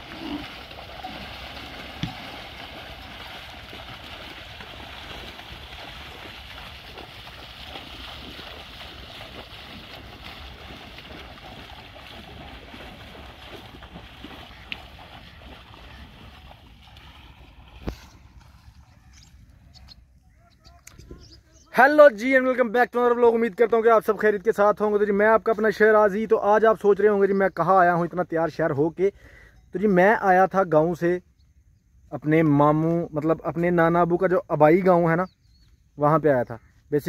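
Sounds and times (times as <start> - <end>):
water sloshing and splashing: 0.0 - 20.2.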